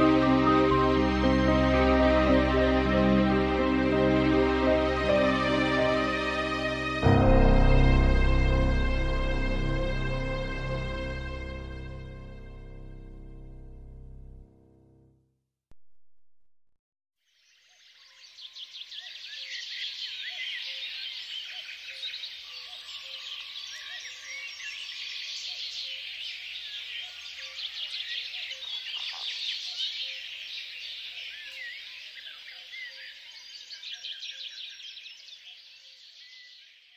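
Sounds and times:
small birds chirping: 17.3s - 36.9s.

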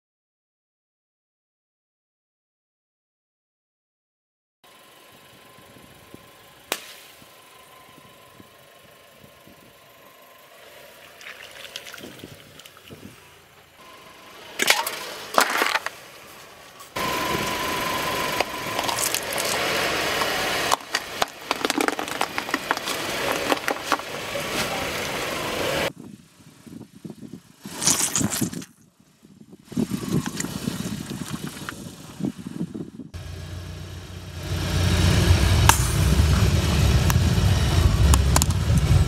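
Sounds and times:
car engine rumble: 4.7s - 39.0s
toothpaste tubes bursting: 18.4s - 24.3s
tyre rolling over objects: 18.7s - 25.0s
plastic toy egg cracking: 20.7s - 24.0s.

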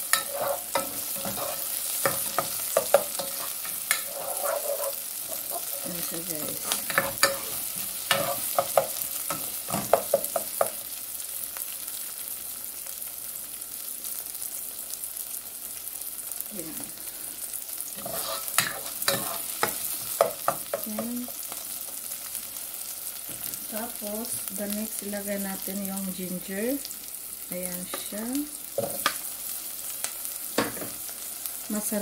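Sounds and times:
spatula scraping and knocking pan: 0.0s - 10.8s, 18.0s - 21.1s, 28.8s - 29.2s
onion frying sizzle: 0.0s - 32.0s.

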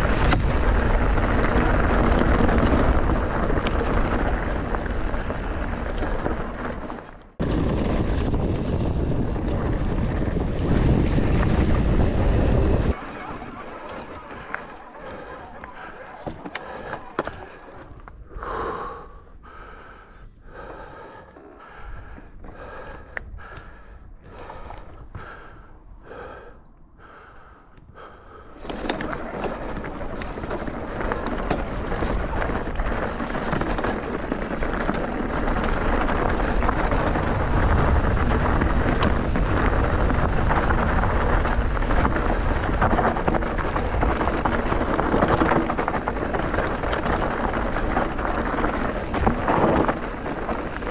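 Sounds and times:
tyres rolling over ground: 0.0s - 18.2s, 28.4s - 50.9s
wind rush on microphone: 0.0s - 18.8s, 27.9s - 50.9s.

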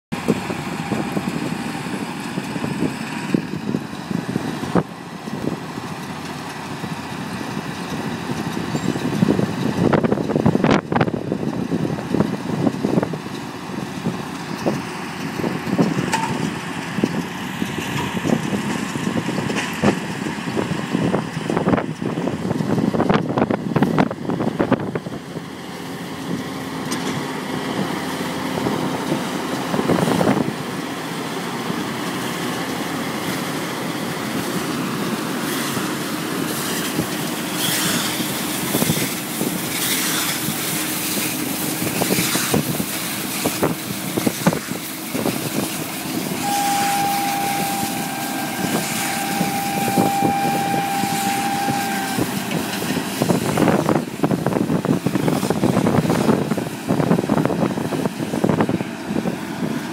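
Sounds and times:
tractor engine running: 0.1s - 59.9s
steady high tone: 46.4s - 52.5s.

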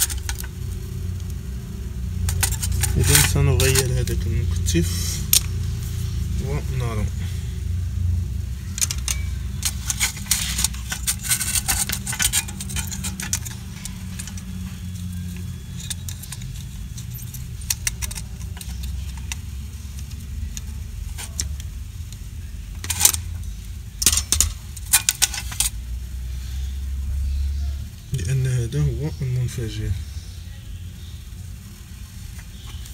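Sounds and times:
circuit board clicking and rattling: 0.0s - 5.6s, 8.6s - 25.8s
steady low hum: 0.0s - 32.9s.

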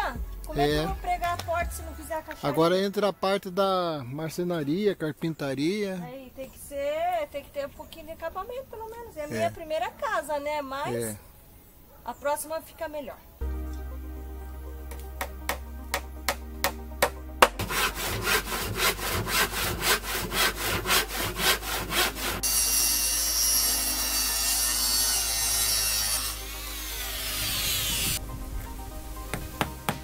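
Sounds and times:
circular saw cutting a board: 17.4s - 28.2s
handsaw cutting a plank: 17.4s - 28.2s
hammer blows on wood: 29.3s - 30.0s.

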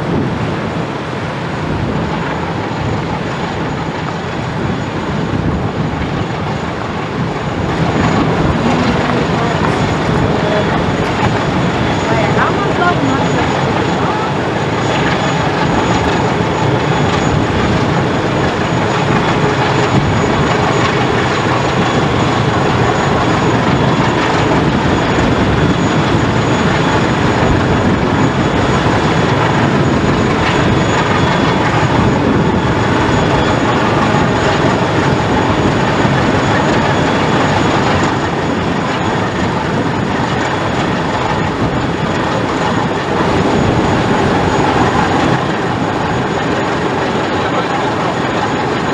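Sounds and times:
ship diesel engine rumbling: 0.0s - 48.9s.

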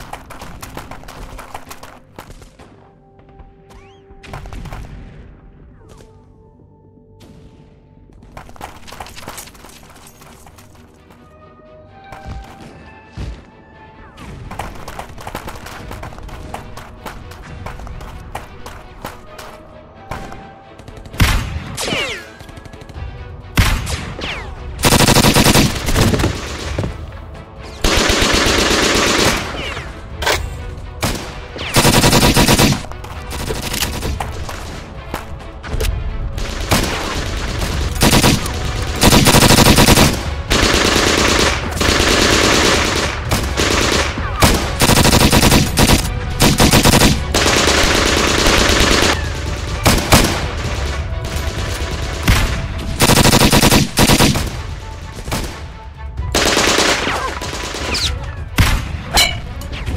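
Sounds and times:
automatic gunfire bursts: 24.8s - 26.2s, 31.8s - 32.9s, 36.5s - 50.4s, 53.0s - 54.5s, 56.4s - 57.9s.

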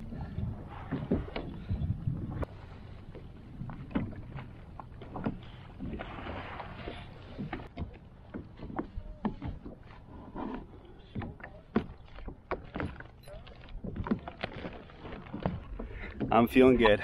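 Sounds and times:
wind and water rumble: 0.0s - 17.0s
fishing gear knocks and clicks: 11.0s - 16.7s.

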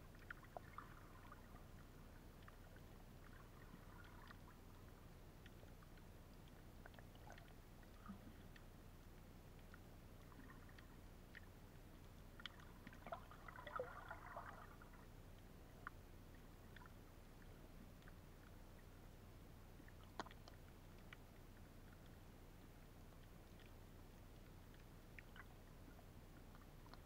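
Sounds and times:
low muffled underwater hum: 0.0s - 27.0s
faint clicks: 0.1s - 13.8s, 19.8s - 27.0s.

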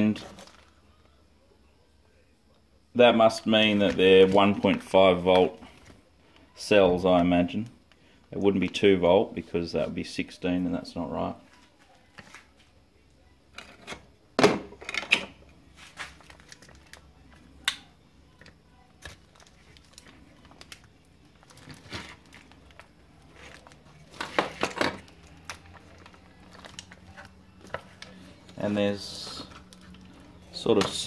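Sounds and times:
foil crinkling and rustling: 0.1s - 0.8s, 15.7s - 17.3s, 19.0s - 31.0s.

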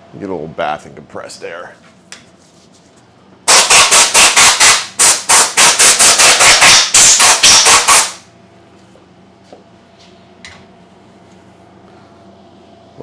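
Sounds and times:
compressed air blasts: 3.5s - 8.2s.

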